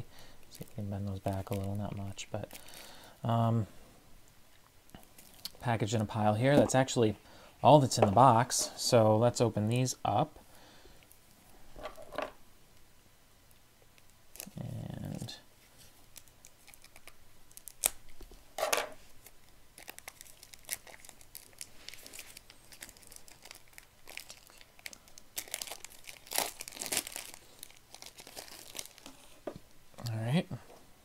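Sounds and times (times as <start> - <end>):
plastic shrink wrap crinkling: 0.4 - 2.9, 14.0 - 18.4, 19.0 - 29.6.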